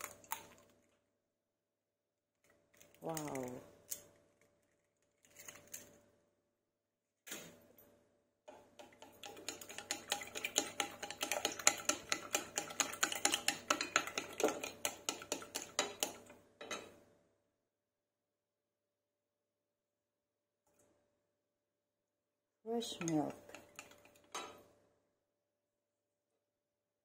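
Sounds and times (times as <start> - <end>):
utensil beating eggs in bowl: 8.5 - 16.4, 22.8 - 24.4.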